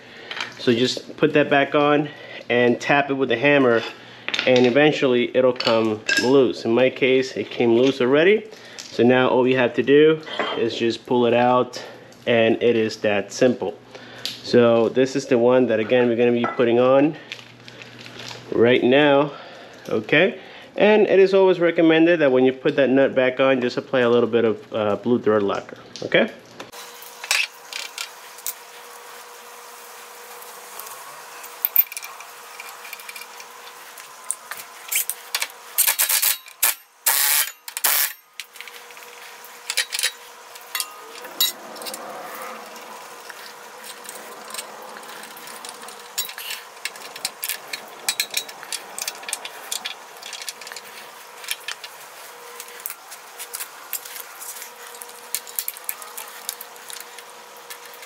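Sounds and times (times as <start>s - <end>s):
metal parts clicking and clinking: 27.2s - 28.6s, 31.4s - 58.0s.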